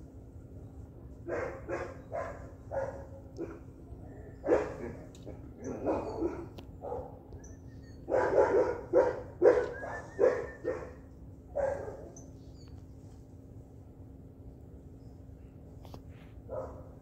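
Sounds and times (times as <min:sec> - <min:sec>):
dog barking: 0:01.3 - 0:03.7, 0:04.4 - 0:05.0, 0:05.6 - 0:07.2, 0:08.0 - 0:12.2, 0:16.5 - 0:17.0.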